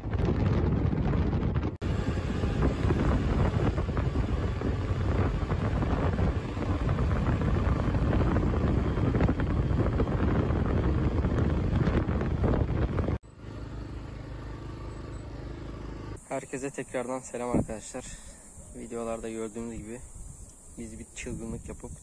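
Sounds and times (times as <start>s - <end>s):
wind rushing over microphone: 0.0s - 13.2s
scooter engine and road noise: 0.0s - 19.2s.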